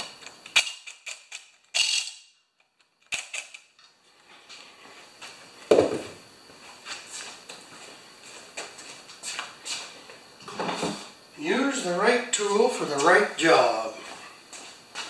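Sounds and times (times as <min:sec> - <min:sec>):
dull thump: 0:05.7 - 0:06.2.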